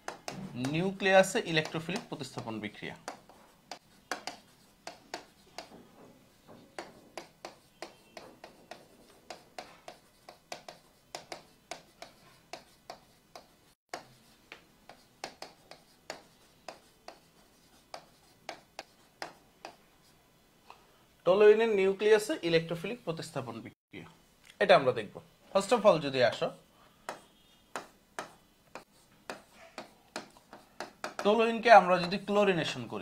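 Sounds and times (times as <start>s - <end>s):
marker writing on whiteboard: 0.0s - 20.2s, 27.0s - 32.5s.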